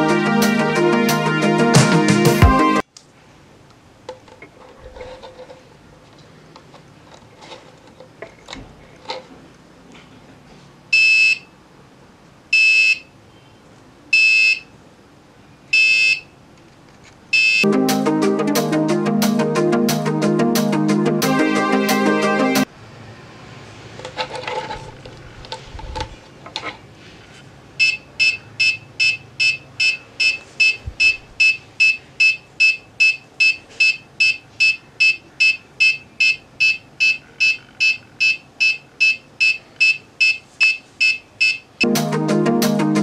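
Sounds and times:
piezo buzzer beeping: 11.0 - 11.5, 12.6 - 13.1, 14.2 - 14.7, 15.8 - 16.3, 17.4 - 17.7, 27.8 - 41.9.

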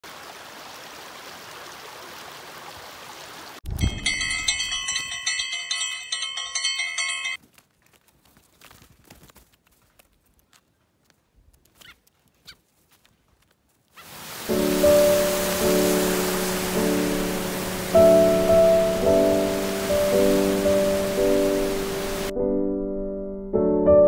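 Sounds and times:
bell-like chiming: 3.7 - 7.4
steady hiss: 14.0 - 22.3.

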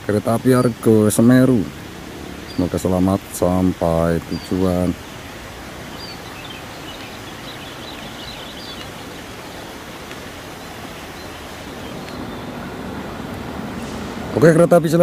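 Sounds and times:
outdoor background hiss: 0.0 - 15.0
faint high bird chirps: 5.9 - 9.9.

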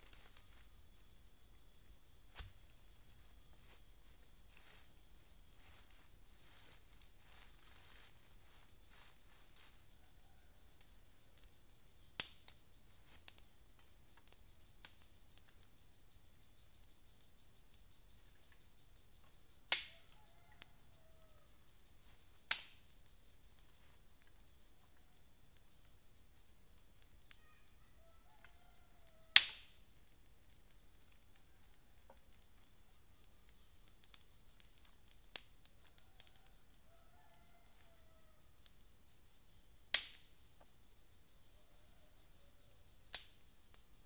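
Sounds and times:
campfire crackling and popping: 0.0 - 41.4, 42.6 - 44.0
faint bird calls: 27.2 - 29.6.

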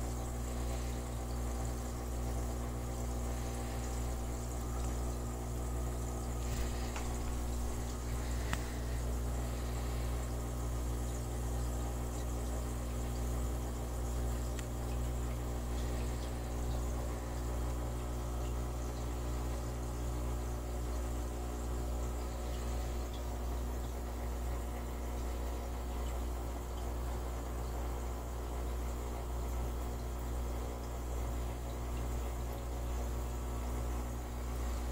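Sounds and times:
aquarium pump humming: 0.0 - 34.9
water bubbling: 0.3 - 11.3.

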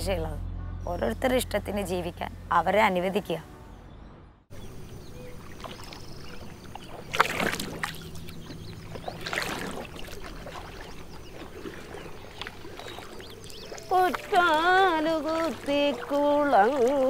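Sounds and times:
paddle strokes in water: 5.1 - 17.0
water dripping: 5.4 - 17.0.

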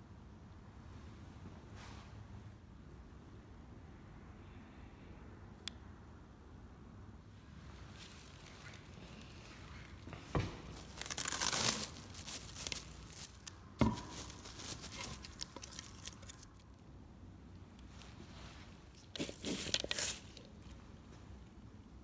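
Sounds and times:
plastic sheeting crinkling: 7.7 - 16.7, 17.9 - 20.8.

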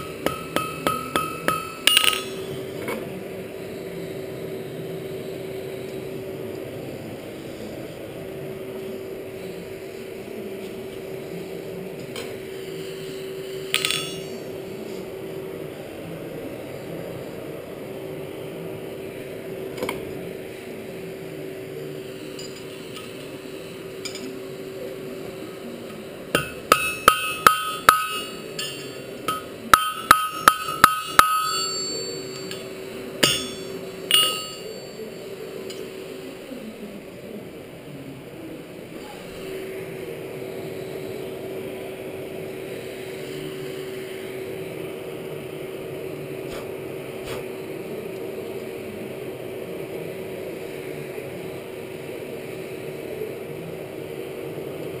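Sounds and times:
hammer blows ringing on anvil: 0.0 - 2.7, 13.7 - 14.4, 26.4 - 35.1
steady hum: 0.0 - 55.0
tongs clinking: 26.4 - 34.9.

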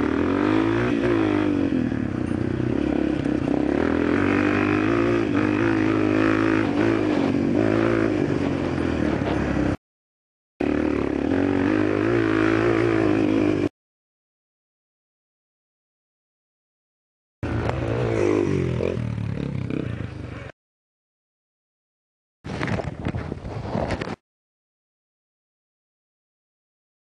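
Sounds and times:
dirt bike engine revving: 0.0 - 9.8, 10.6 - 13.7, 17.4 - 20.5.

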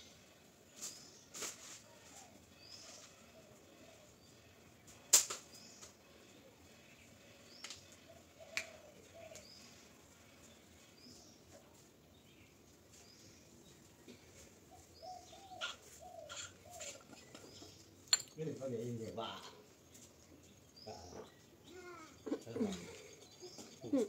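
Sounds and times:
faint bird chirps: 14.7 - 17.9.

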